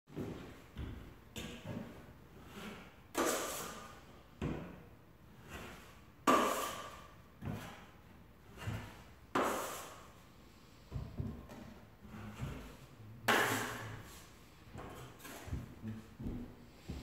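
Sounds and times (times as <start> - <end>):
taping knife scraping mud pan: 2.3 - 4.1, 5.3 - 10.1, 12.0 - 15.6.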